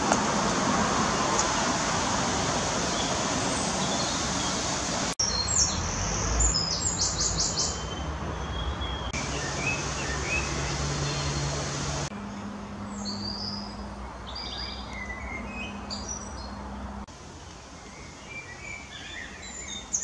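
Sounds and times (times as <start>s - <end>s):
outdoor ambient noise: 0.0s - 20.0s
small birds singing: 2.8s - 20.0s.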